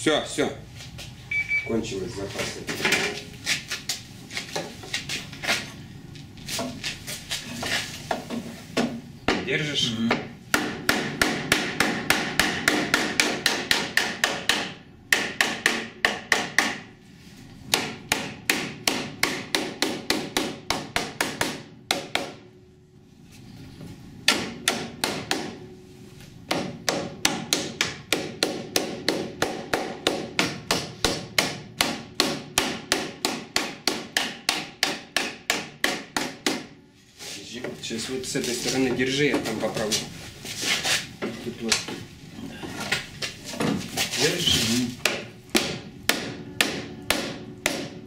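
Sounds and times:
hammer striking steel bar: 45.0 - 48.0.

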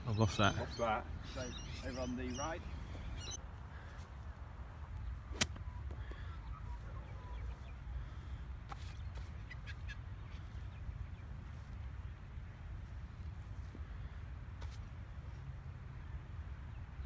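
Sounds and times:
golf club striking a ball: 5.3 - 5.6.

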